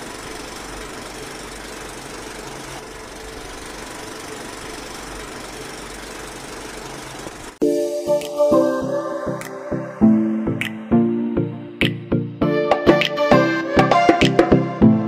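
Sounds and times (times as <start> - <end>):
loud music: 7.6 - 15.0.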